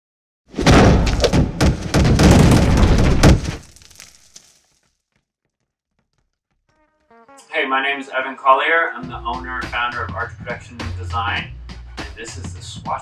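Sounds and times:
shattering crash: 0:00.6 - 0:04.5.

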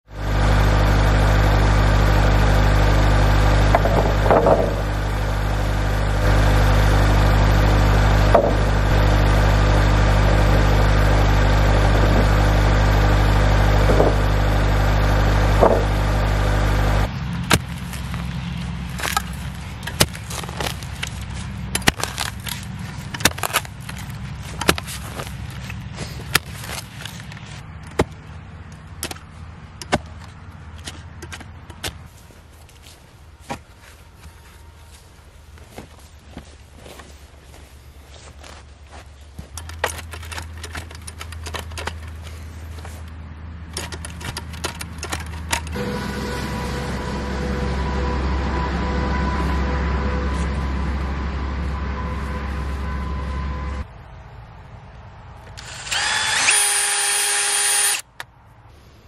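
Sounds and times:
diesel engine idling: 0:00.1 - 0:26.8, 0:44.9 - 0:53.9
post-hole digging thuds: 0:02.5 - 0:28.3.

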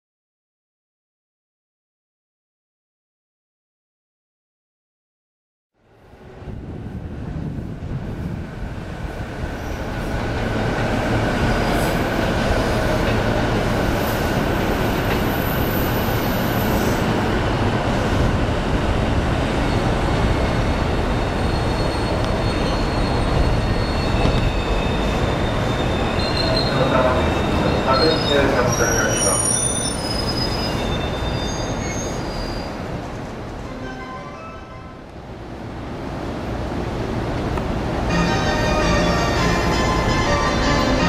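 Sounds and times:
high train squeals: 0:09.5 - 0:18.3, 0:19.4 - 0:35.0, 0:38.1 - 0:41.0.

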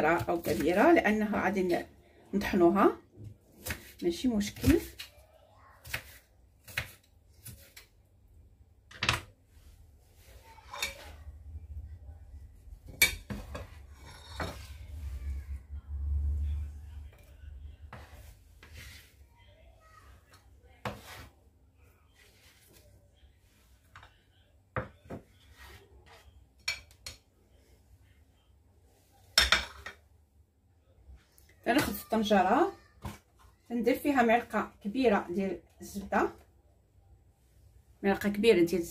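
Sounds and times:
knife scraping on cutting board: 0:13.3 - 0:14.8, 0:20.8 - 0:21.3
dish clattering on counter: 0:29.4 - 0:30.0.

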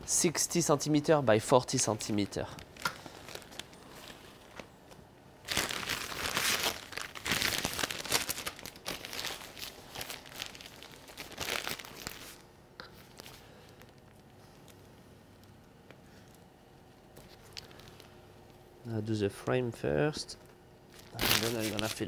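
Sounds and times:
plastic piping bag crinkling: 0:01.8 - 0:14.9, 0:17.2 - 0:18.2, 0:20.9 - 0:22.0.

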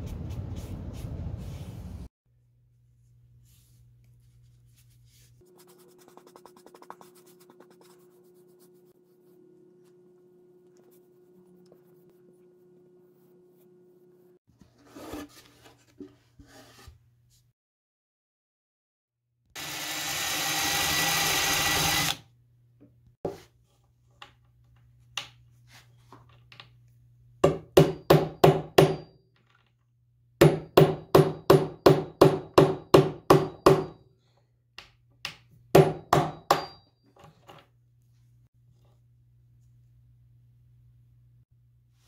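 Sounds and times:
power tool running: 0:19.6 - 0:22.2.

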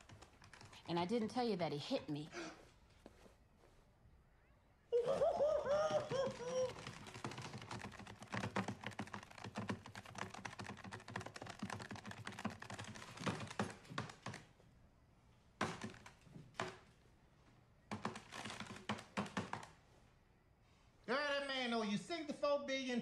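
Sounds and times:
calculator keys clicking: 0:05.9 - 0:14.5.

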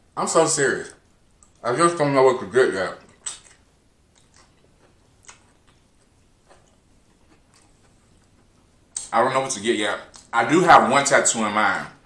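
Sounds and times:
chewing noodles: 0:03.0 - 0:09.0
wet mouth clicks: 0:03.0 - 0:09.1.

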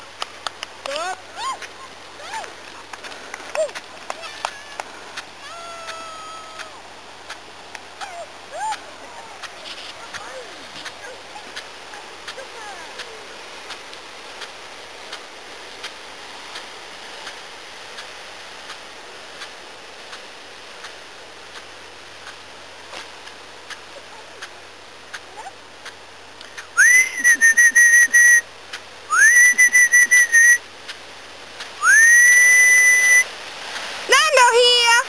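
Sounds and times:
faint hiss: 0:00.0 - 0:35.0
whistle blasts: 0:26.8 - 0:28.4, 0:29.1 - 0:30.6, 0:31.8 - 0:33.3.

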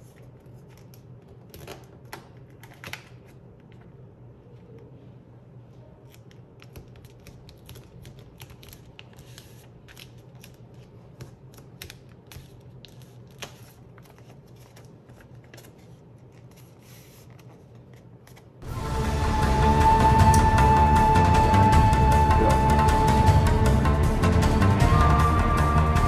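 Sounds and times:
paper crinkling and rustling: 0:06.0 - 0:18.6
loud music: 0:18.6 - 0:26.0.

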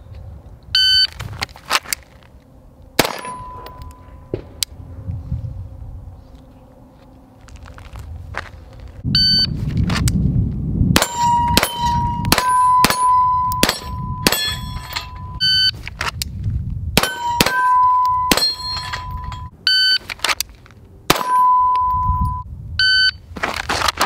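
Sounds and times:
pistol shots: 0:03.0 - 0:03.7, 0:11.0 - 0:14.7, 0:17.0 - 0:18.7, 0:21.1 - 0:21.5
steel target ringing: 0:03.0 - 0:04.4, 0:11.0 - 0:15.4, 0:17.0 - 0:19.5, 0:21.1 - 0:22.4.

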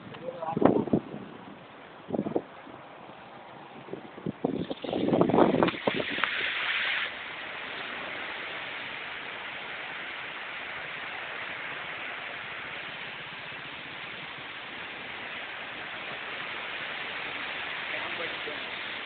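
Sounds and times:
river water rushing: 0:04.7 - 0:19.0.

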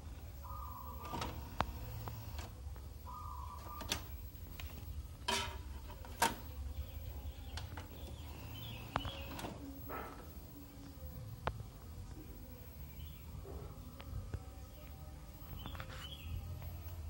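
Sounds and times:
disc tray motor whirring: 0:00.5 - 0:02.6, 0:07.6 - 0:10.0.

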